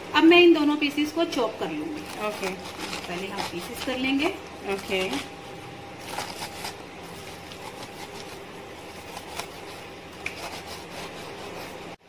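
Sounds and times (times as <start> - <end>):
knife crunching through fried chicken: 1.9 - 5.3, 6.0 - 12.0.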